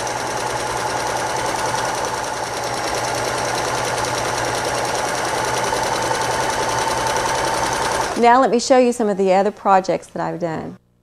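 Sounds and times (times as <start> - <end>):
sewing machine running: 0.0 - 8.4.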